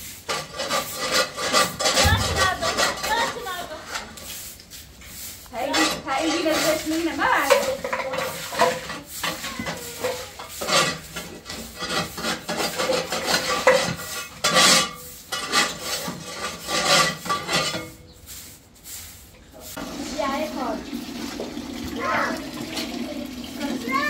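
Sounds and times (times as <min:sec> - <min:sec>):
stiff brush scrubbing concrete: 0:00.0 - 0:24.0.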